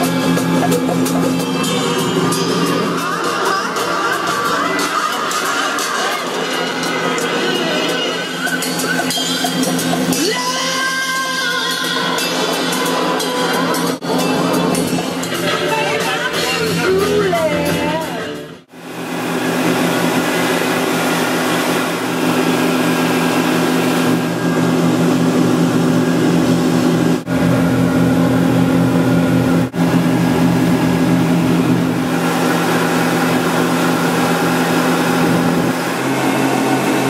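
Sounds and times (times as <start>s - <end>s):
outboard motor running: 0.0s - 37.0s
rushing wake and spray: 18.7s - 37.0s.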